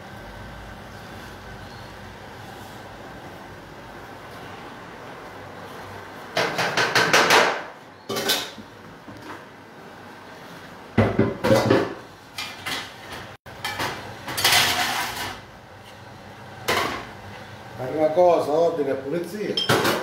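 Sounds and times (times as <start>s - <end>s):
kitchen utensils and dishes clattering: 6.4s - 9.3s, 11.0s - 15.5s, 19.6s - 20.0s.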